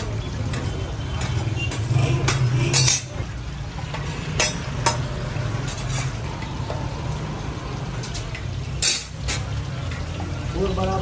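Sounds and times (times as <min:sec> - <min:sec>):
eggs sizzling in oil: 0:00.0 - 0:11.0
spatula scraping pan: 0:00.4 - 0:03.2.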